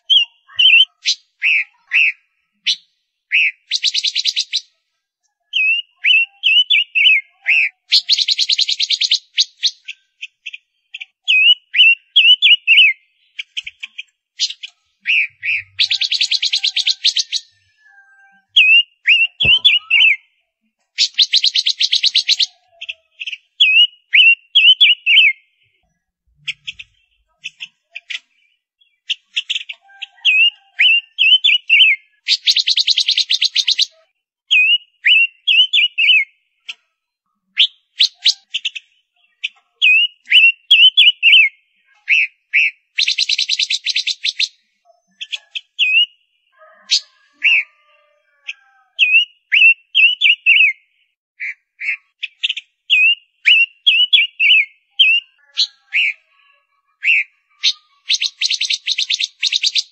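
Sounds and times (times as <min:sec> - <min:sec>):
bird whistled calls: 0:00.0 - 0:04.7, 0:14.4 - 0:17.8, 0:18.5 - 0:20.2, 0:21.0 - 0:22.6, 0:34.5 - 0:36.3, 0:37.6 - 0:38.8, 0:39.8 - 0:41.5, 0:42.1 - 0:48.0, 0:49.0 - 0:50.8, 0:51.4 - 0:56.2, 0:57.0 - 0:59.9.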